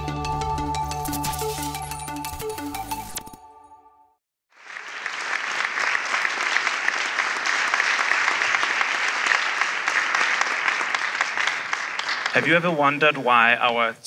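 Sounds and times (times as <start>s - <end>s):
audience applauding: 4.5s - 13.1s.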